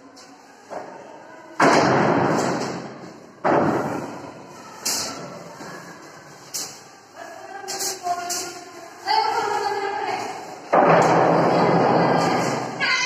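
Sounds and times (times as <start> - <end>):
loud echoing thuds: 1.6 - 4.2.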